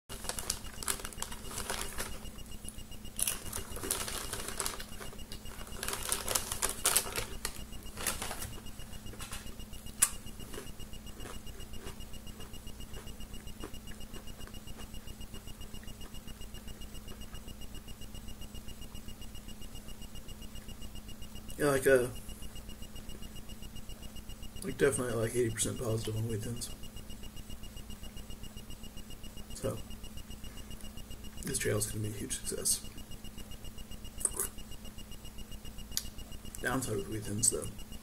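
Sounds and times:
crackers crunching: 0.1 - 2.2, 3.2 - 8.6
plastic sleeve crinkling: 0.1 - 2.2, 3.2 - 8.5
rapid high beeping: 0.1 - 38.0.

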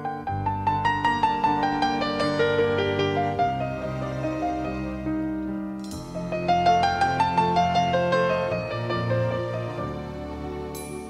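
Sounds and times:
held low chord: 0.0 - 11.0
piano melody: 0.0 - 11.0.

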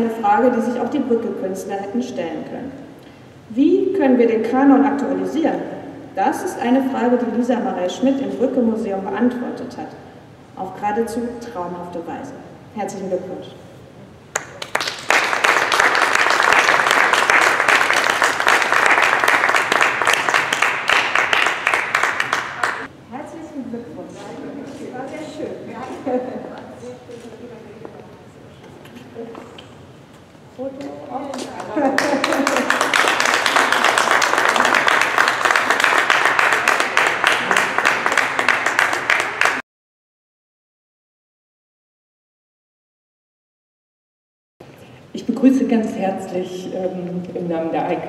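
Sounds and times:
audience applauding: 14.3 - 22.9, 31.3 - 39.6.

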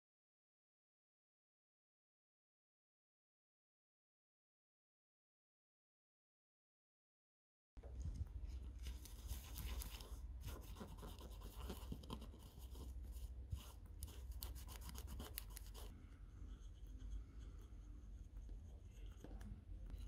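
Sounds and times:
tissue wiping circuit board: 8.4 - 20.0.

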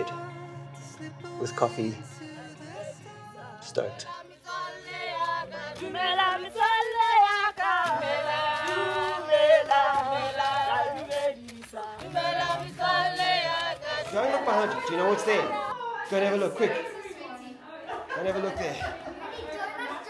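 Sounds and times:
group singing a cappella: 0.0 - 15.8.

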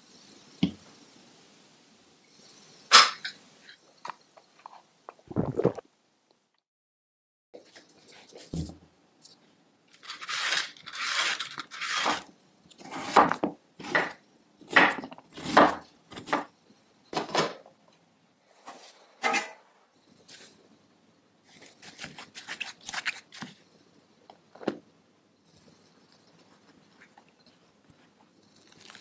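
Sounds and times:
peeler scraping root skin: 10.0 - 13.2, 21.5 - 23.6.

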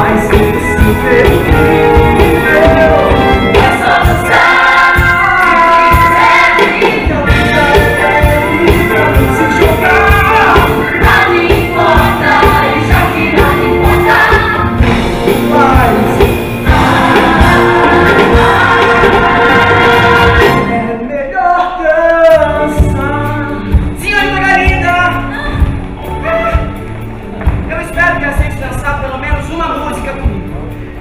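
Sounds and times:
band with steady beat: 0.0 - 20.8, 22.6 - 30.9
group of voices singing: 0.0 - 23.6.

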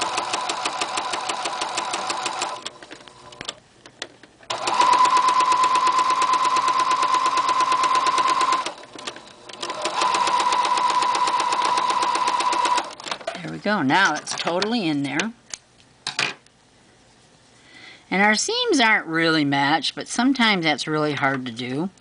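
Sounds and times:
sewing machine motor whine: 0.0 - 2.7, 4.5 - 13.0.

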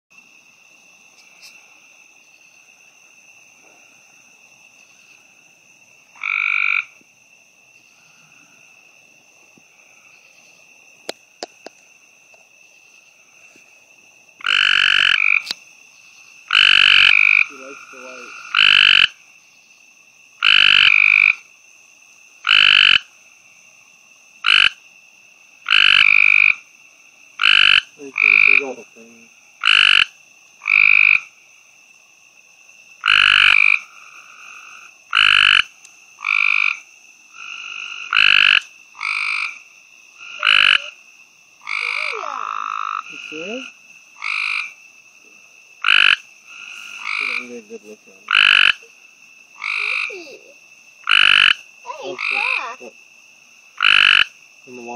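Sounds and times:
treefrog trilling: 4.8 - 7.0, 14.4 - 21.7, 22.3 - 23.7, 24.3 - 24.9, 25.5 - 31.8, 32.7 - 54.9.

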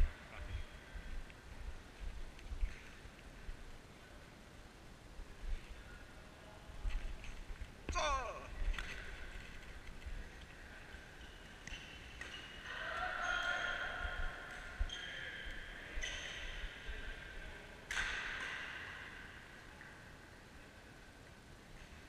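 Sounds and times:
racket hitting shuttlecock: 17.9 - 18.9.

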